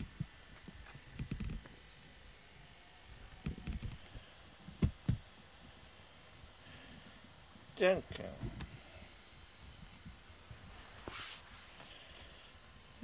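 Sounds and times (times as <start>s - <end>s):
rustling of fur: 9.8s - 12.3s
cat rubbing against camera: 10.6s - 11.9s.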